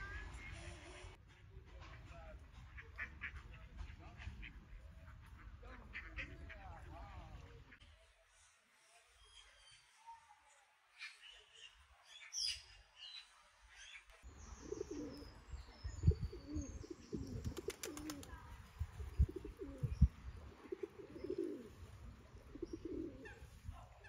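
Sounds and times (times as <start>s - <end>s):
small birds chirping: 2.2s - 24.0s
pigeons cooing: 14.5s - 15.4s, 16.0s - 18.4s, 19.0s - 23.6s.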